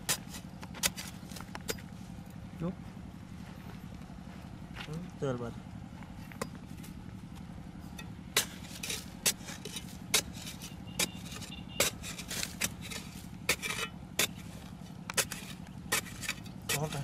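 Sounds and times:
soil scraping: 0.0s - 2.4s, 6.1s - 17.0s
knife stabbing into hard earth: 8.3s - 17.0s.

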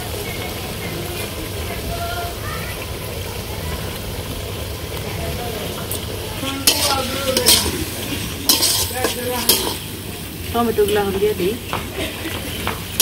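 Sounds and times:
vegetables sizzling in a pan: 0.0s - 13.0s
metal spatula scraping a pan: 6.4s - 13.0s.

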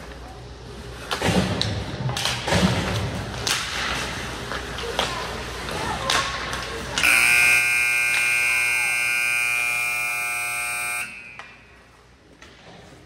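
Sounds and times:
scoreboard buzzer blast: 7.0s - 11.5s.

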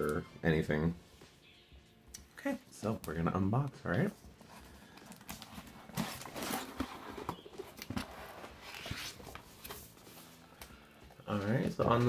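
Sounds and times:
cardboard box scraping and rustling: 5.5s - 9.9s.

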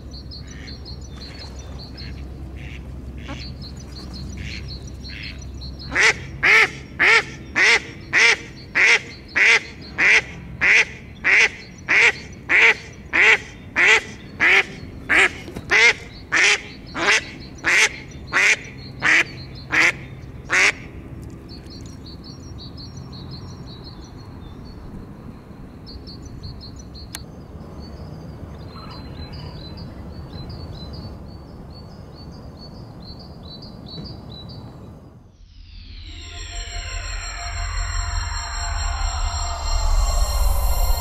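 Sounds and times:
duck quacking: 2.0s - 3.5s, 5.9s - 20.8s
faint high chirping: 35.3s - 41.0s.

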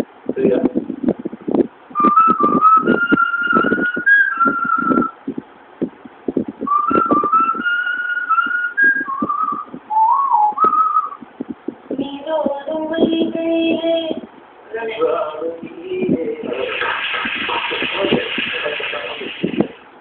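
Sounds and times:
woman whistling a tune: 2.0s - 5.2s, 6.6s - 11.2s.

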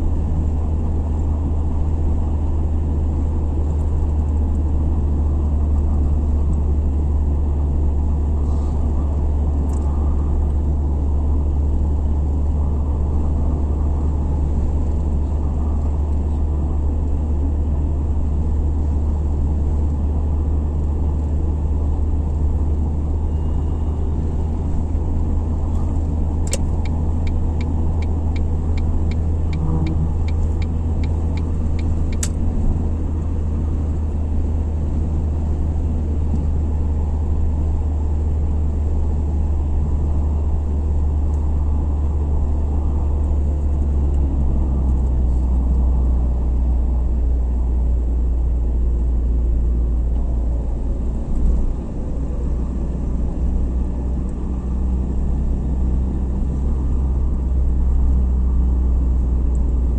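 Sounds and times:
car road and engine rumble: 0.0s - 59.9s.

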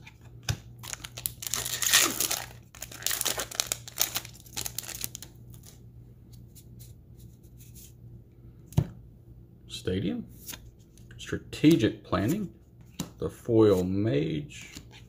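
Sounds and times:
foil wrapper tearing and crinkling: 0.8s - 5.7s.

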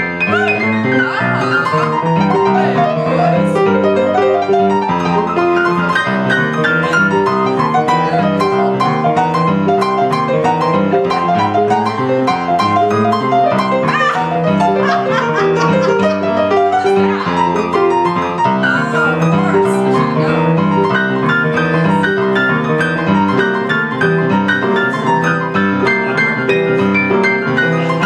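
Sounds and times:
boogie-woogie piano: 0.0s - 28.0s.

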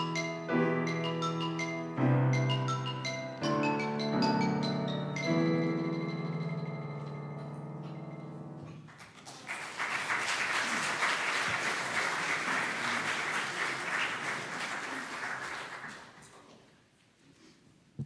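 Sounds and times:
crowd applauding: 8.7s - 16.5s.

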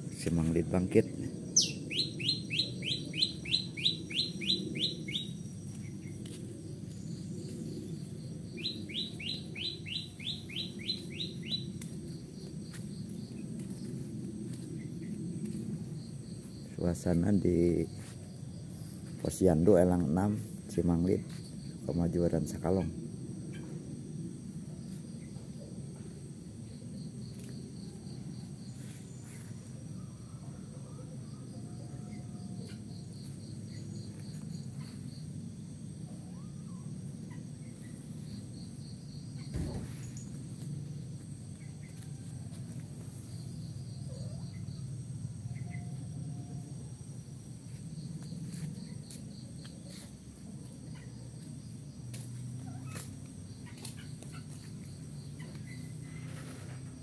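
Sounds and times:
high-pitched pulsed chirping: 0.9s - 14.0s.

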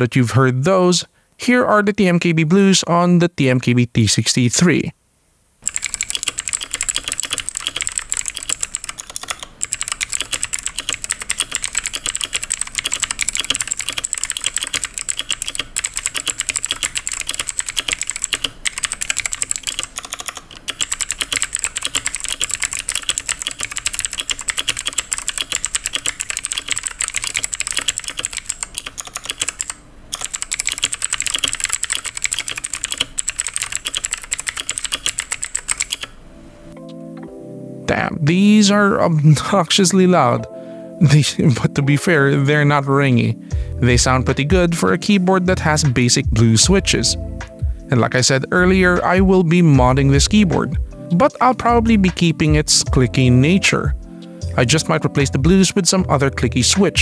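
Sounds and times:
fast clicky keyboard typing: 5.6s - 36.2s.

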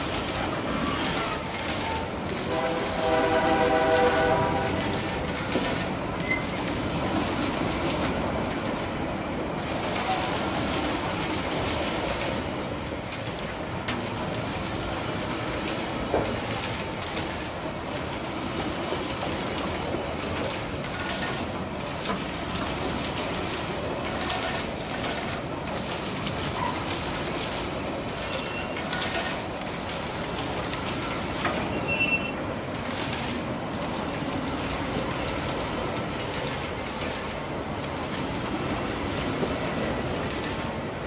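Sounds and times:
train wheels rolling on rail: 0.0s - 41.0s
high wheel squeals: 31.7s - 32.4s.

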